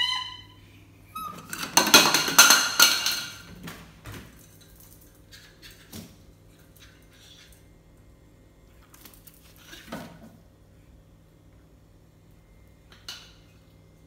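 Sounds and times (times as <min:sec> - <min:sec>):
animals scuffling on tile floor: 0:08.7 - 0:10.3.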